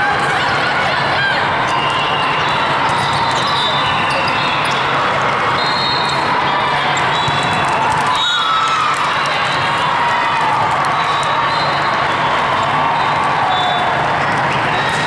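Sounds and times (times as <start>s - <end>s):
crowd chatter: 0.0s - 15.0s
balls hitting the floor: 7.1s - 8.8s.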